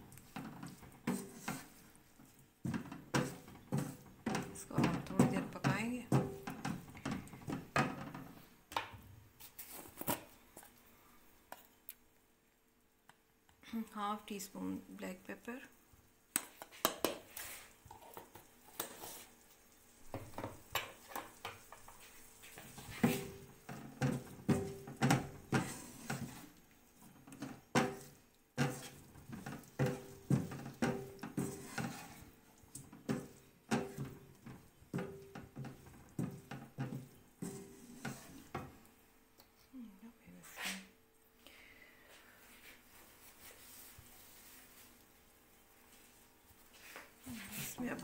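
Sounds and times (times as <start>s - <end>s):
wooden spatula scraping a wok: 0.0s - 8.5s, 16.6s - 38.9s, 42.5s - 45.1s.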